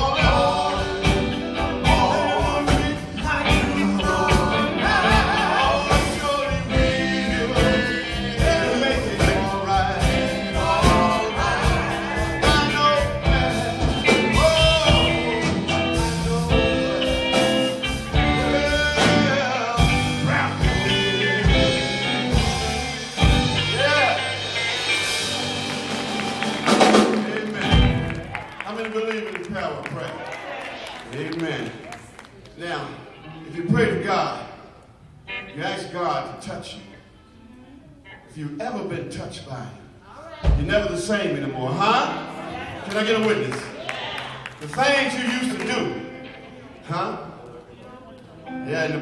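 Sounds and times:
group vocals singing: 0.0s - 23.4s
live gospel band playing: 0.0s - 49.0s.

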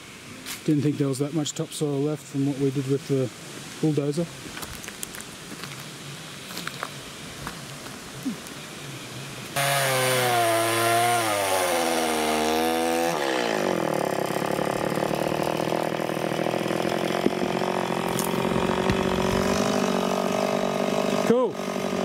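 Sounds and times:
chainsaw cutting wood: 9.6s - 22.0s.

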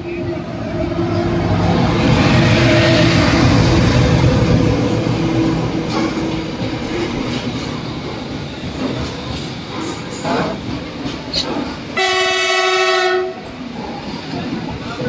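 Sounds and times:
locomotive engine drone: 0.0s - 8.7s
train wagons rumbling and clattering: 0.0s - 15.0s.

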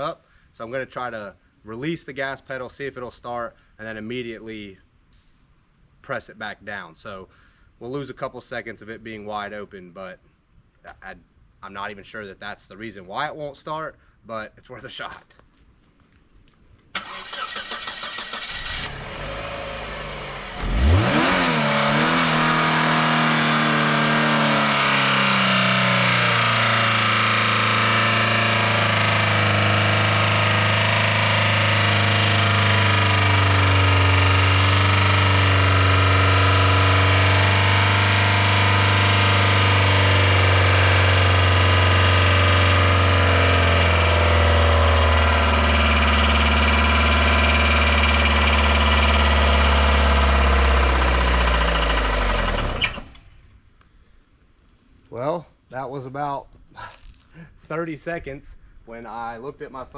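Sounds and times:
car engine cranking and starting: 16.9s - 53.6s
car engine running steadily: 17.0s - 53.2s.

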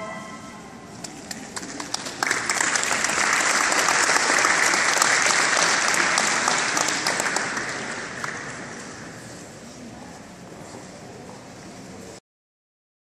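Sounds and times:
audience applauding: 1.1s - 9.0s.

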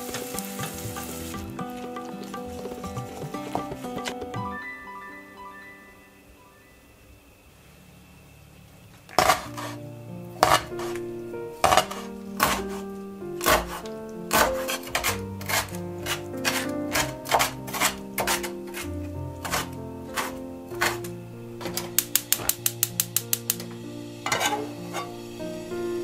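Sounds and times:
background music: 0.0s - 7.1s, 9.2s - 26.0s
knife chopping on wooden board: 10.4s - 11.0s, 11.6s - 21.0s.

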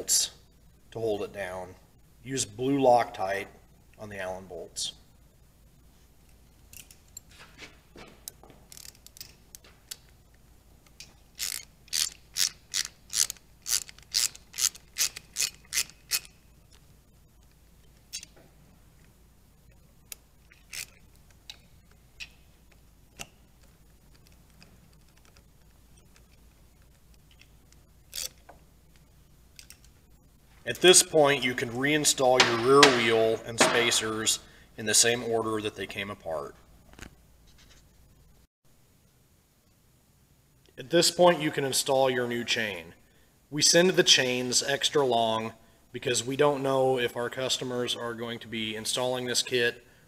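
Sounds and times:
ratchet wrench clicking: 8.7s - 9.4s, 11.0s - 16.4s, 20.5s - 21.6s.

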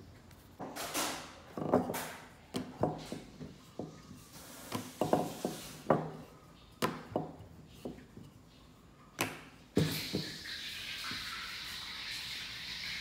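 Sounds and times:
hands rubbing on dough: 3.0s - 6.4s.

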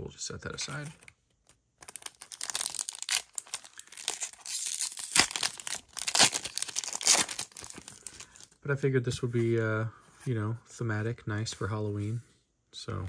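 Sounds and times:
wrappers tearing and crinkling: 1.8s - 8.5s.

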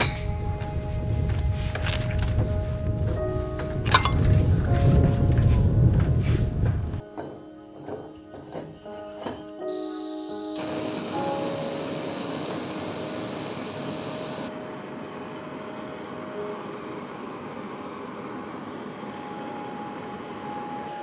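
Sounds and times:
gas stove hissing: 9.8s - 14.5s.

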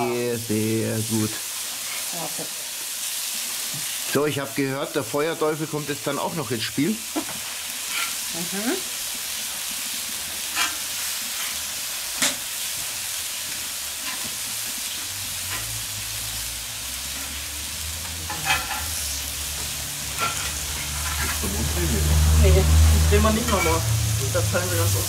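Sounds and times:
fruit sizzling on griddle: 0.0s - 25.0s
metal spatula scraping plate: 7.9s - 8.2s, 10.5s - 11.6s, 18.2s - 19.0s, 20.1s - 21.5s.

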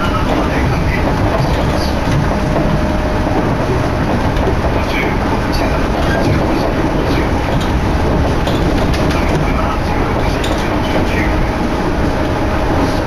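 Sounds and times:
train wheels rumbling on rail: 0.0s - 13.0s
wind noise: 0.0s - 13.0s.

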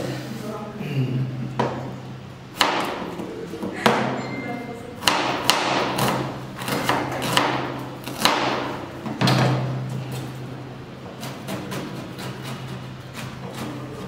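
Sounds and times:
knife chopping on plastic board: 2.6s - 3.2s, 5.0s - 9.6s.

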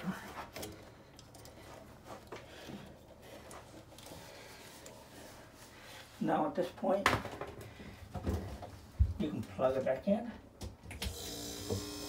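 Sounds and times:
faint clicks and handling noises: 0.3s - 5.3s.

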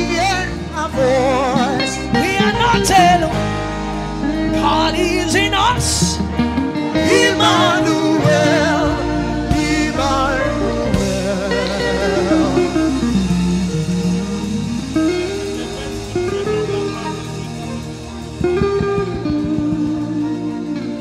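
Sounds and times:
sustained instrumental accompaniment: 0.0s - 21.0s
voices singing with vibrato: 6.9s - 13.1s.

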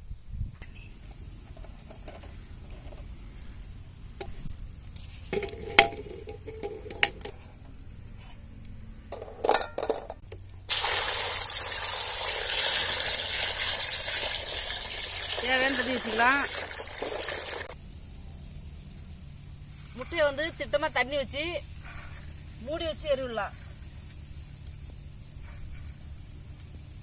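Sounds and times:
water pouring into metal pot: 10.7s - 17.8s.

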